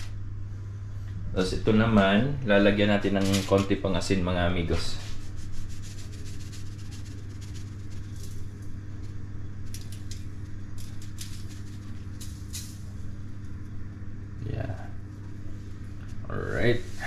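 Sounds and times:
steady low hum: 0.0 - 17.0
salt sprinkling crackles: 5.0 - 13.6.

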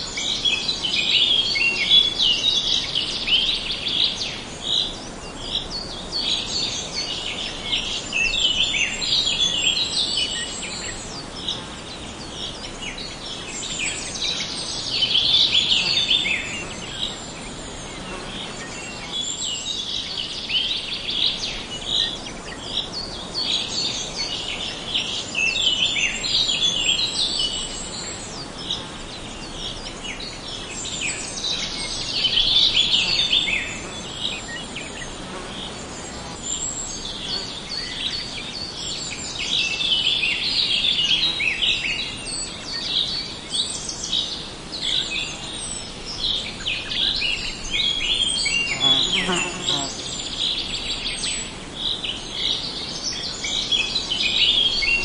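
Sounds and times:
songbirds chirping and twittering: 0.0 - 55.0.

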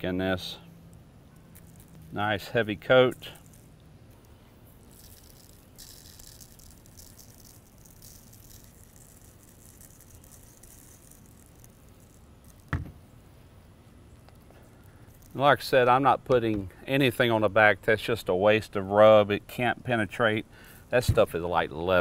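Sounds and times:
salt rattling in shaker jar: 4.8 - 12.7
short thump: 12.7 - 13.0.

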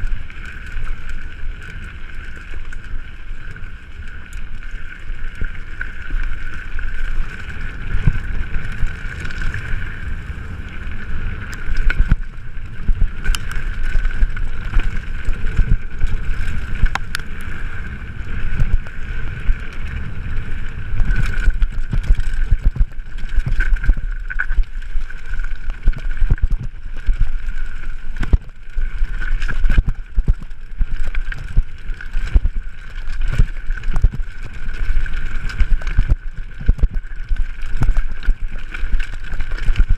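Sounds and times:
bike tyre rumble: 0.0 - 39.9
wind buffeting microphone: 7.8 - 24.0.

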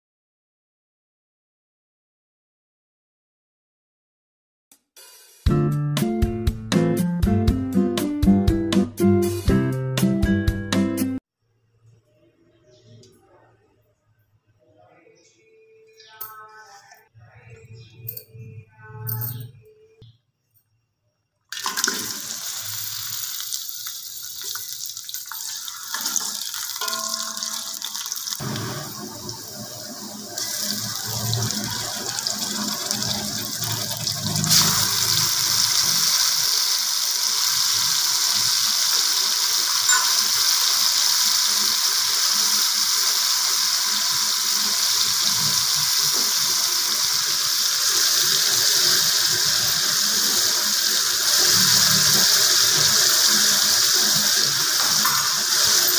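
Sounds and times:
onions sizzling in hot oil: 21.6 - 55.9.

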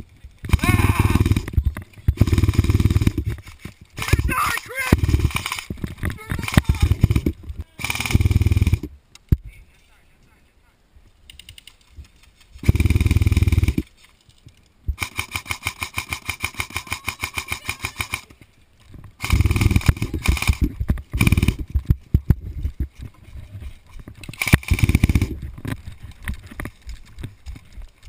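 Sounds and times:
airsoft rifle bursts: 4.0 - 5.7, 6.3 - 8.8, 15.0 - 18.3, 19.2 - 21.6, 24.4 - 25.3.

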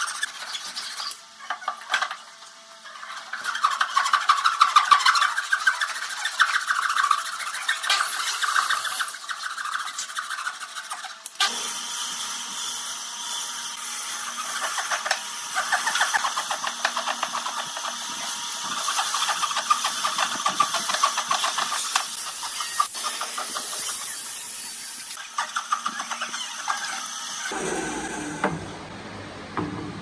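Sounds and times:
hand saw cutting wood: 2.9 - 12.5, 13.4 - 27.6.

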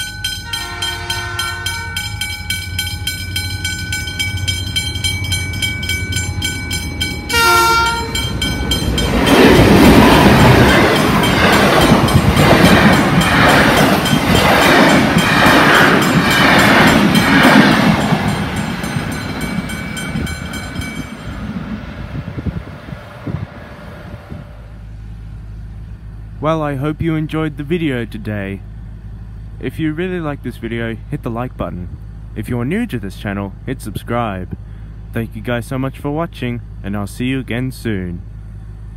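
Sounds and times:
level crossing bells ringing: 0.0 - 21.5
wheels clattering over rail joints: 0.0 - 21.7
train passing with loud rush: 0.0 - 38.9
train horn blast: 0.4 - 2.3, 7.3 - 8.5.

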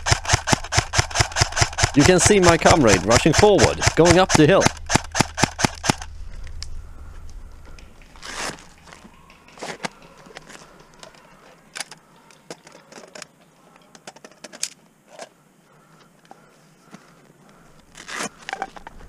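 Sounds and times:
footsteps through dry vegetation: 4.8 - 11.7.

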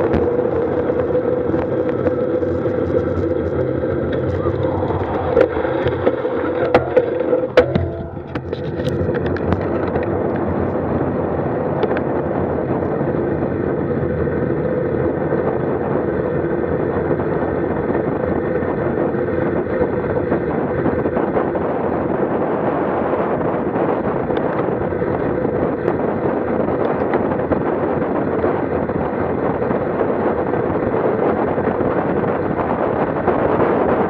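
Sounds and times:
wind and road noise: 0.0 - 34.0.

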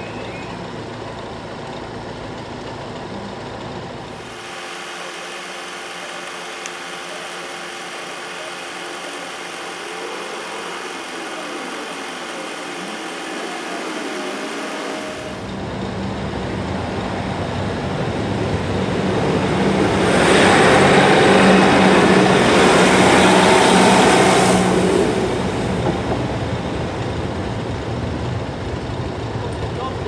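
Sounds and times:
train engine drone: 0.0 - 30.0
train rumbling past: 9.9 - 29.8.

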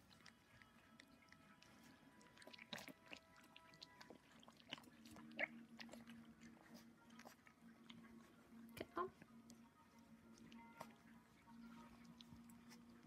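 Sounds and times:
puppies lapping from steel bowl: 0.0 - 9.3.

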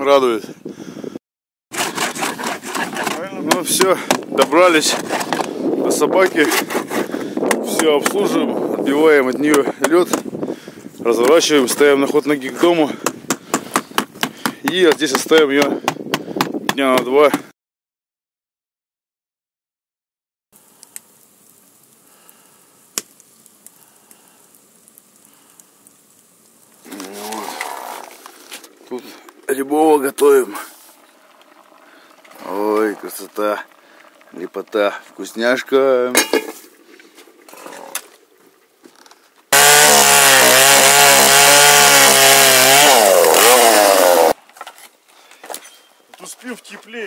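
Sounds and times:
chainsaw cutting log: 1.7 - 5.6, 6.2 - 8.2, 39.5 - 44.4
wood fire crackling: 1.7 - 15.7, 20.6 - 47.0
soft steady hiss: 20.6 - 39.6.

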